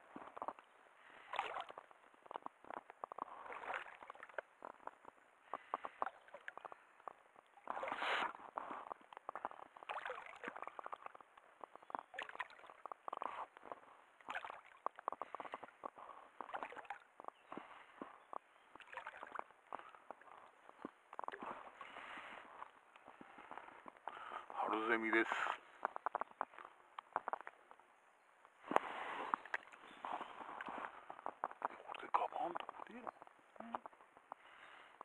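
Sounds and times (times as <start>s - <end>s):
waves lapping against boat: 0.2s - 6.7s, 7.5s - 22.5s
water slosh: 1.1s - 2.5s, 3.2s - 4.5s, 7.6s - 8.4s, 9.7s - 11.2s, 12.0s - 13.6s, 14.2s - 15.6s, 16.4s - 17.1s, 18.8s - 20.3s.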